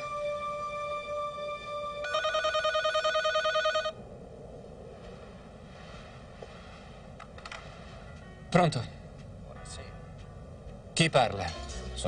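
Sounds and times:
electronic telephone ringer trilling: 2.0s - 4.0s.

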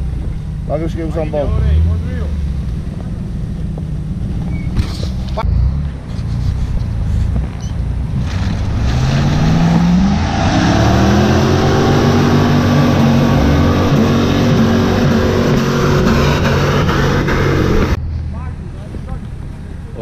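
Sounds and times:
engine revving hard: 8.1s - 18.0s.

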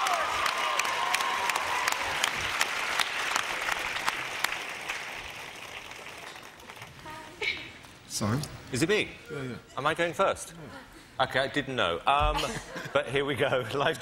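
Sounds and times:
studio audience applauding: 0.0s - 7.0s.

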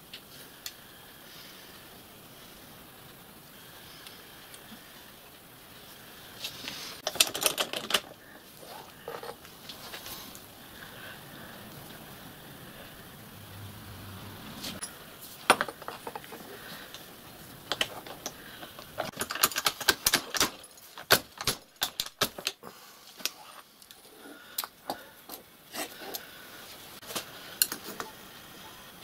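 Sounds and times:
metal tools clinking: 7.0s - 9.5s.

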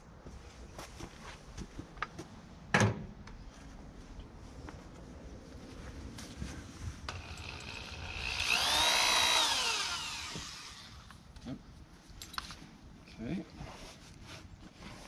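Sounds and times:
power drill whining: 7.1s - 11.1s.

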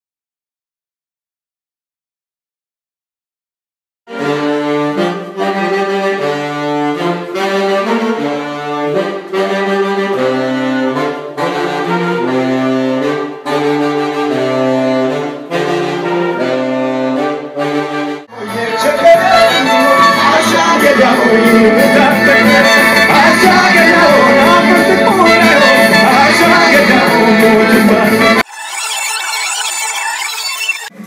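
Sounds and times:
saxophones and trumpet riff: 4.1s - 28.6s
full band music: 4.2s - 28.4s.

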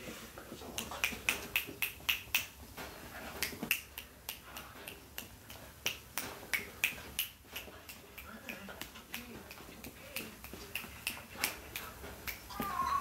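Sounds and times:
fingers snapping: 0.8s - 2.6s.

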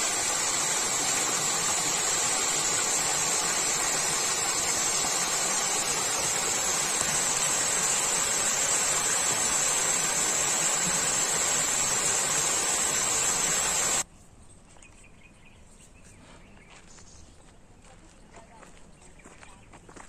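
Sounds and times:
loud high-pitched hiss: 0.0s - 14.0s.

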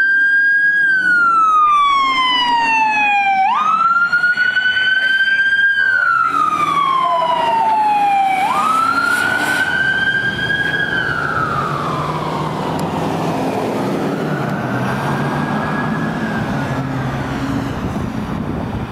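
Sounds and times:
electronic wail siren: 0.0s - 18.0s
engine and tyre noise: 0.0s - 18.9s.

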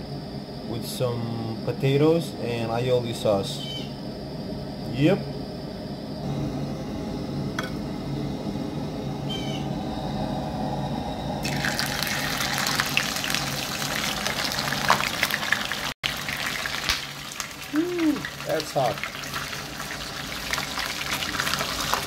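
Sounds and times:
low steady hum: 0.0s - 21.6s
hot oil sizzling and crackling: 11.4s - 22.0s.

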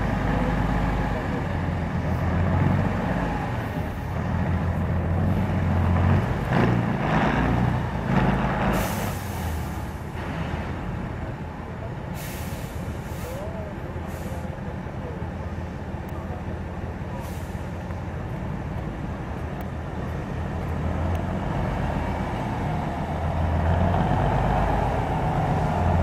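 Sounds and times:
diesel truck engine labouring: 0.0s - 26.0s
air brake hisses: 8.7s - 10.0s, 12.2s - 14.5s, 17.2s - 17.7s.

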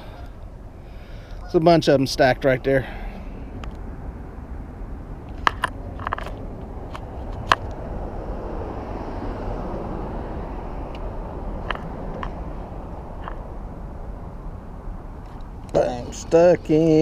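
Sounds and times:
traffic rumble on bridge: 0.0s - 17.0s.

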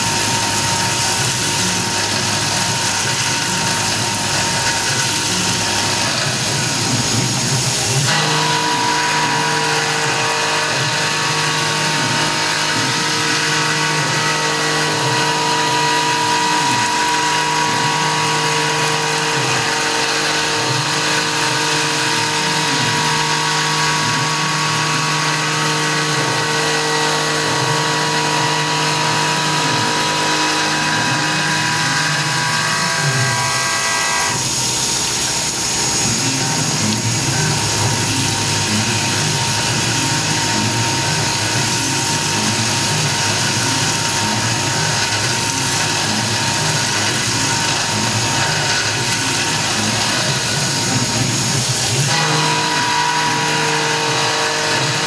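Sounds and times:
hiss of cutting and coolant spray: 0.0s - 55.0s
milling machine whine: 0.0s - 55.0s.

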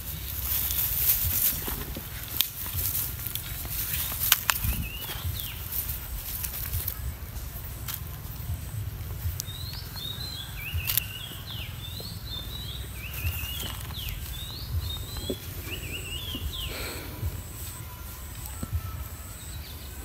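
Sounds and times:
low rumble: 0.0s - 20.0s
high chirping calls: 2.7s - 7.1s, 8.5s - 20.0s.

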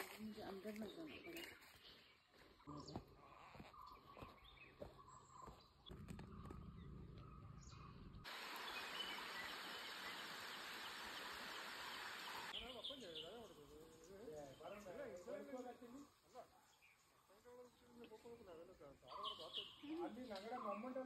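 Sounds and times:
bird chirps: 0.7s - 21.0s
steady hiss: 8.3s - 12.5s.

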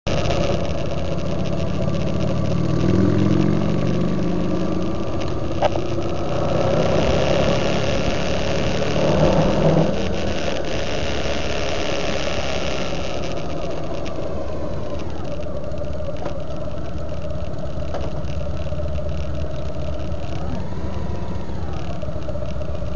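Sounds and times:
motorcycle engine running: 0.0s - 22.9s
road and wind noise: 0.0s - 22.9s.

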